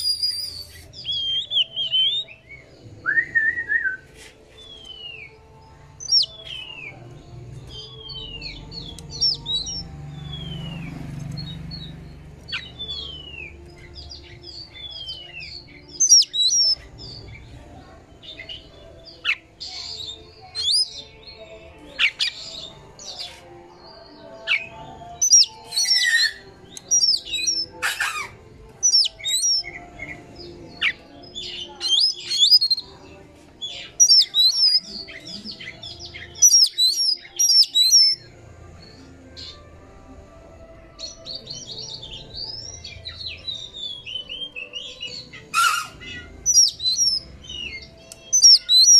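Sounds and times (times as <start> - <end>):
bird singing whistles and trills: 0.0 - 5.4, 6.0 - 7.0, 7.6 - 11.9, 12.5 - 17.4, 18.3 - 21.1, 24.4 - 30.2, 30.8 - 32.8, 33.6 - 38.3, 41.0 - 48.9
harsh scratchy bird notes: 24.5 - 29.6, 45.4 - 47.2.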